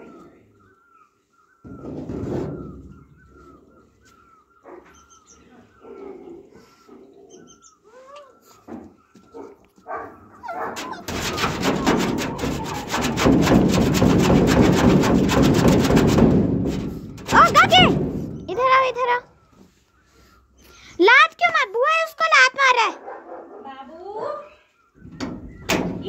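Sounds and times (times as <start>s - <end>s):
dog whining: 7.2s - 12.9s
dog pawing at wooden door: 10.5s - 18.7s.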